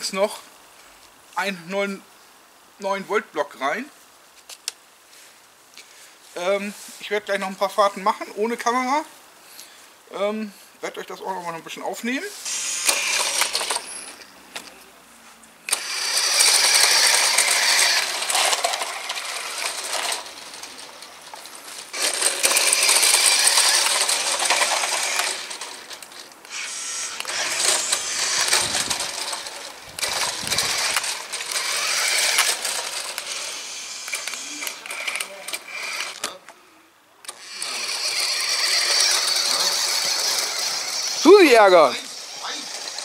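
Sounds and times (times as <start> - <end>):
toy truck motor whirring: 12.4 - 14.2, 15.7 - 36.4, 37.2 - 43.0.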